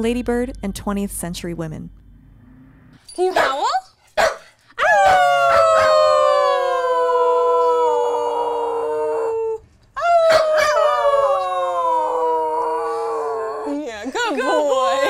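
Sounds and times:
dog howling: 4.8s - 15.0s.

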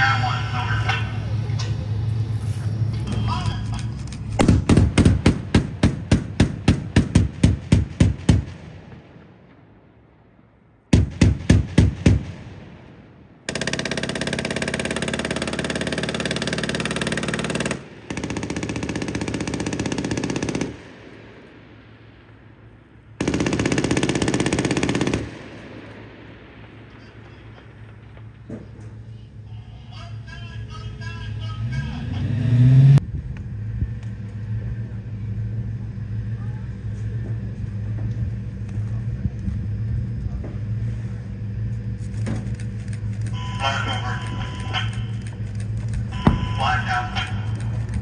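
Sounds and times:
autocannon firing single rounds: 3.3s - 29.1s
machine gun rapid bursts: 4.4s - 8.5s, 13.5s - 20.8s, 23.2s - 25.4s.

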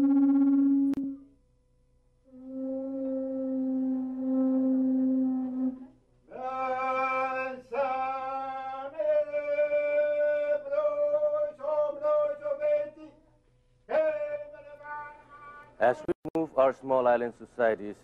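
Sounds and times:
long held sung notes: 0.0s - 1.4s, 2.2s - 13.1s.

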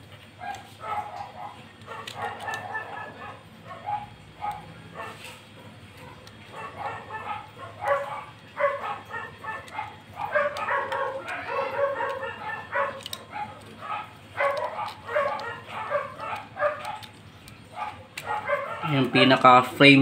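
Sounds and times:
dog barking: 0.4s - 19.3s.

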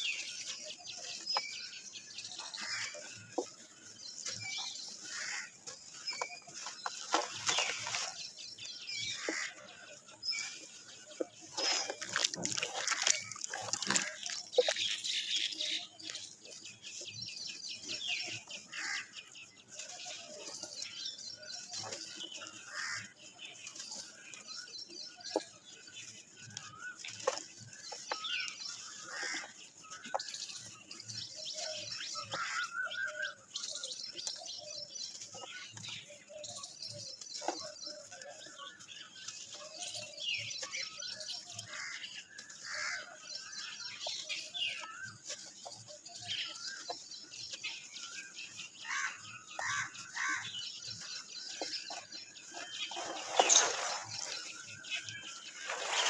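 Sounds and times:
birds chirping: 0.0s - 56.0s
wet mud squelching: 4.4s - 9.7s, 11.2s - 16.2s, 48.9s - 56.0s
dirt chunks cracking: 6.2s - 8.3s, 11.2s - 15.2s.

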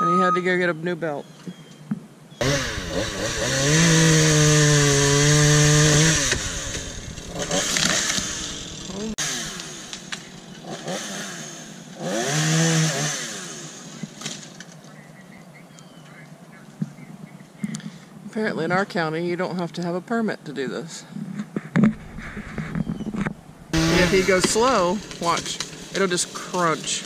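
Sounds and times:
chainsaw revving: 2.4s - 14.4s, 21.9s - 27.0s.

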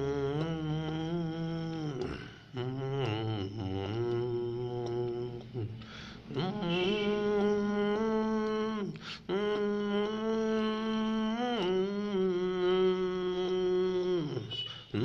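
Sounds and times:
man humming into microphone: 0.0s - 15.0s
quick breath in: 5.8s - 6.3s.

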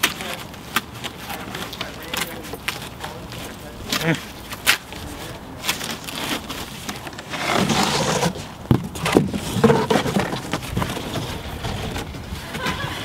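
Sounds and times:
cardboard scraping and rustling: 5.2s - 13.0s.

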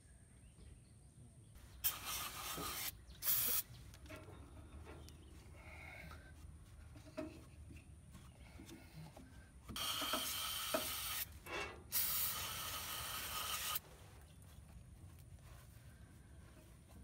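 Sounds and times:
aerosol spray can hissing: 1.8s - 3.6s, 11.9s - 13.8s.

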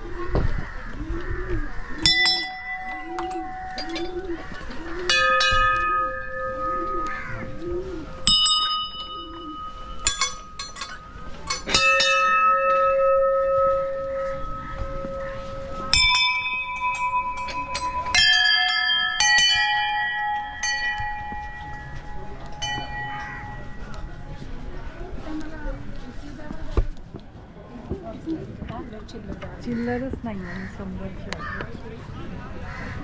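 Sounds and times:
temple bells ringing: 2.0s - 25.1s.

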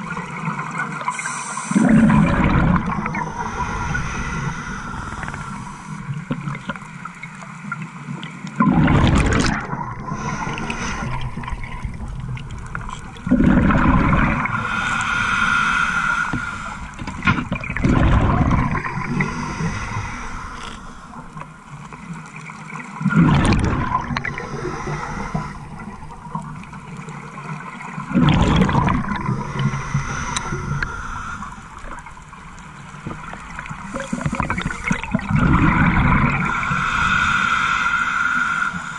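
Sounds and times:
quiet regulator breathing: 0.4s - 7.4s, 9.8s - 17.8s, 18.4s - 22.3s, 23.9s - 27.1s, 28.8s - 38.9s
bubbling exhalations underwater: 1.8s - 4.3s, 8.6s - 14.7s, 17.0s - 20.1s, 23.1s - 25.2s, 28.1s - 29.8s, 33.8s - 36.6s.

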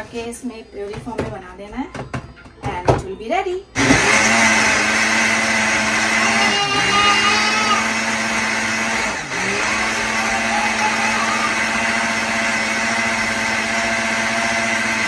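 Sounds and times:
blender running: 3.8s - 15.0s.

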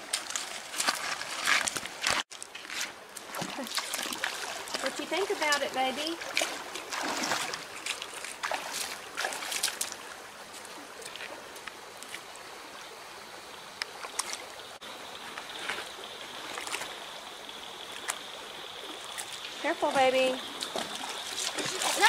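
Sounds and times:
creek water running over rocks: 0.0s - 22.0s
knocks and splashes: 3.2s - 10.0s, 19.0s - 22.0s.

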